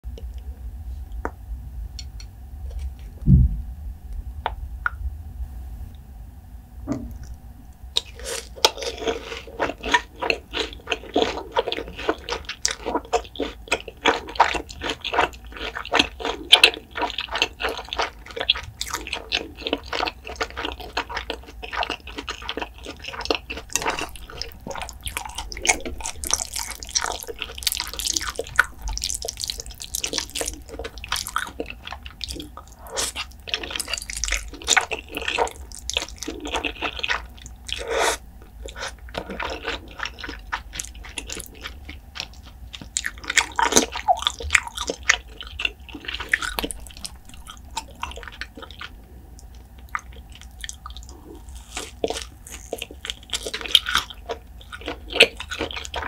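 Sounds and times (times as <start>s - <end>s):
low thump: 3.2s - 3.8s
wet sticky eating sounds: 8.0s - 56.0s.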